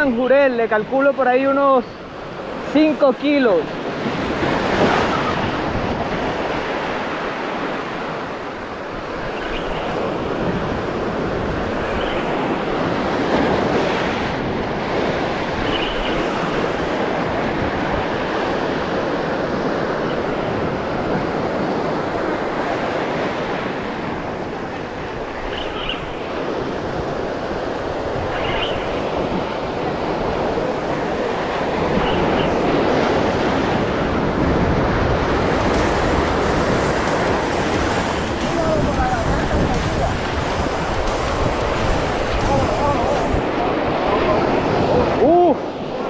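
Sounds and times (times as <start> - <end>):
surf breaking over rocks: 26.2 - 46.0.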